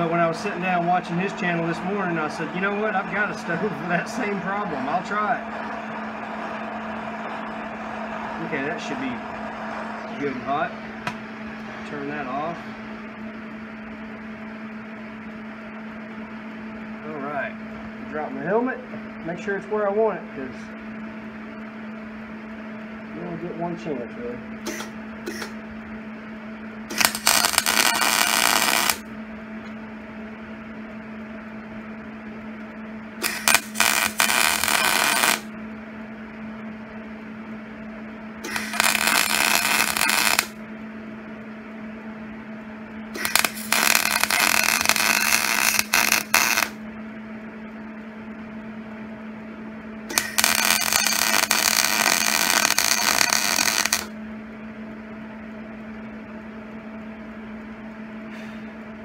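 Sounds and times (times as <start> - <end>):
welding arc crackling: 0.0 - 9.7, 26.9 - 29.1, 33.2 - 35.5, 38.4 - 40.6, 43.2 - 46.8, 50.1 - 54.1
steady hum: 0.0 - 59.0.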